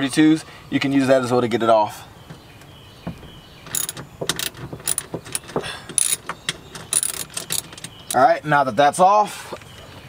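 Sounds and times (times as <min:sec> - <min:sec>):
socket ratchet clicking: 0:03.7 - 0:08.2.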